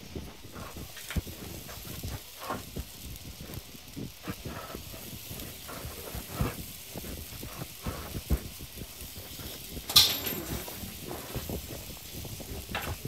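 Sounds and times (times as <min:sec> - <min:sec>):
batter sizzling on a griddle: 0:00.0 - 0:13.0
wooden picks tapping and scraping: 0:09.9 - 0:10.8.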